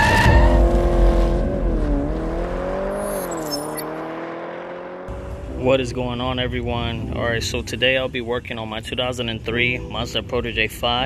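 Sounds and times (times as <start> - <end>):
deep rumble: 0.0 - 3.2
car engine revving: 0.0 - 7.5.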